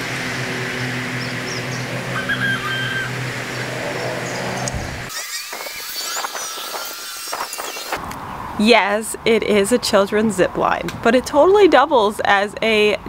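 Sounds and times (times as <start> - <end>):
birds chirping: 0.0 - 7.1
low mechanical hum: 0.0 - 7.9.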